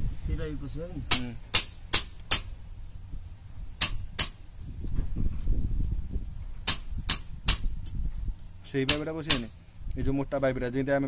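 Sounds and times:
low rumble: 2.6s - 6.7s
hand hammer blows: 8.9s - 9.6s.

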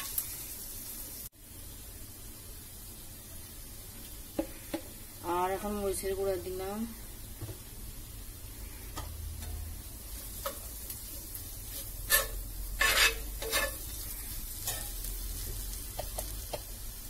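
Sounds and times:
onions sizzling in oil: 0.0s - 17.0s
steel spoon scraping a pan: 11.6s - 15.1s.

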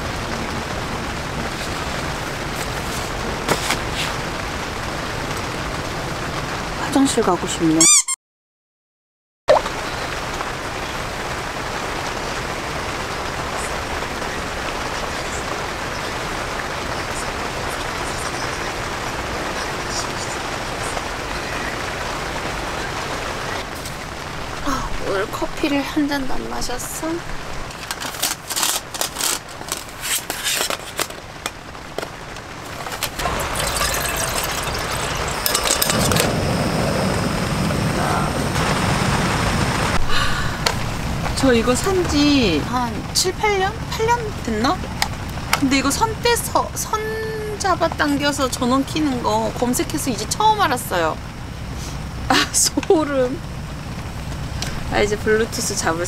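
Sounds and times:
raindrops ticking: 0.0s - 7.7s, 9.6s - 36.8s, 37.9s - 56.0s
rain falling on a tent: 0.0s - 7.8s, 9.6s - 56.0s
water pouring into kettle: 32.6s - 37.2s
gas stove burner rushing: 32.7s - 37.4s
kettle clinks: 32.8s - 36.4s.

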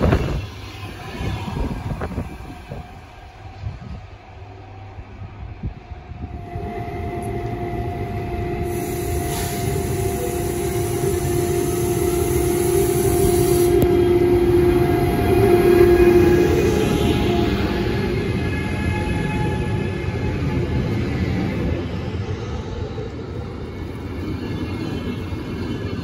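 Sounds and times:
train approaching: 0.0s - 26.0s
steady humming tone: 0.4s - 18.7s.

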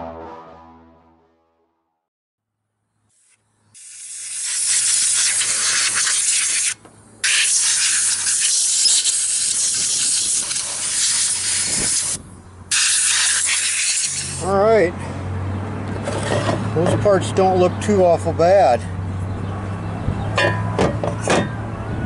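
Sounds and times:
cleaning spray hissing: 3.2s - 14.4s.

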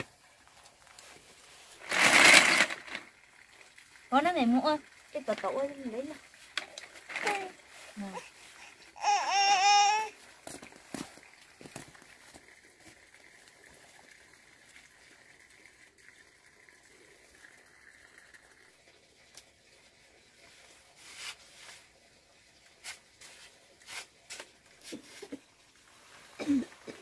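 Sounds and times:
faint steady hiss: 0.0s - 27.0s.

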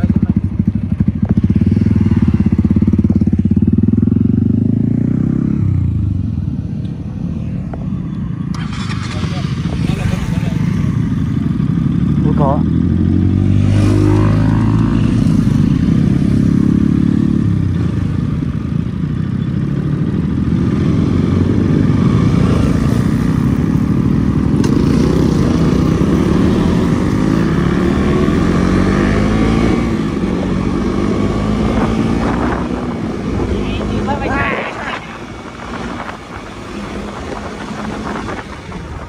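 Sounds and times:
motorcycle engine running: 0.0s - 6.3s.

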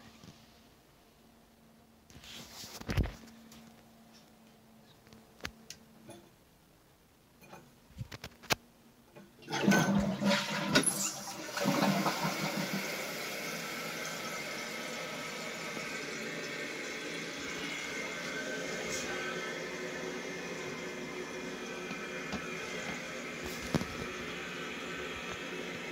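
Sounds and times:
toilet flushing: 9.4s - 25.9s
toilet tank refilling hiss: 9.5s - 25.9s.

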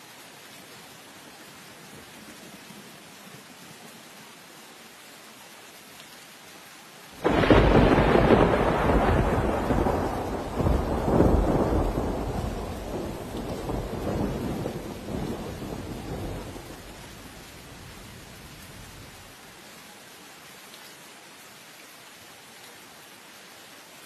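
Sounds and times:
heavy rain: 0.0s - 24.0s
thunder rolling: 7.2s - 17.0s.

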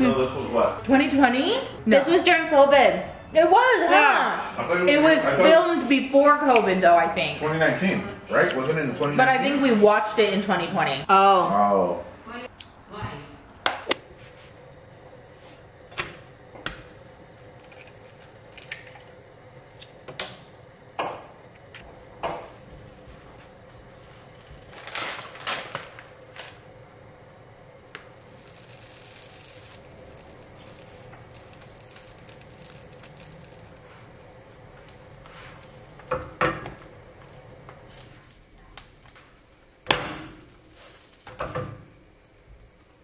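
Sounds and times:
faint steady hum: 9.5s - 43.0s.

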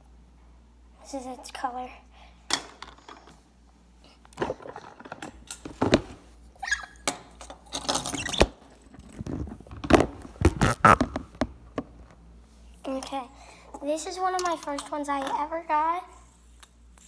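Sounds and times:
short high squeak: 6.6s - 7.0s.

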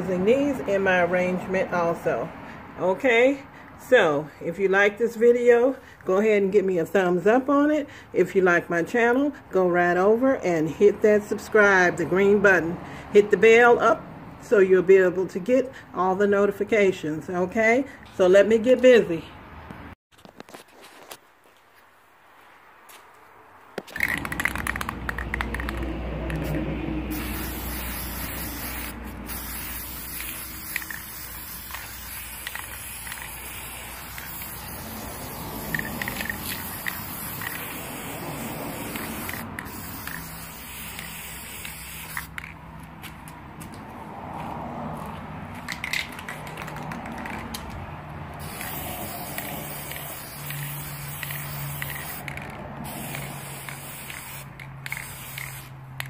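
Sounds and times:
spray paint can hissing: 23.8s - 42.6s, 45.7s - 47.7s, 48.3s - 56.0s.

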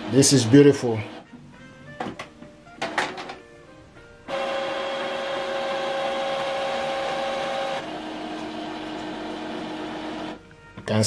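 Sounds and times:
printer mechanism whine: 4.3s - 10.4s.

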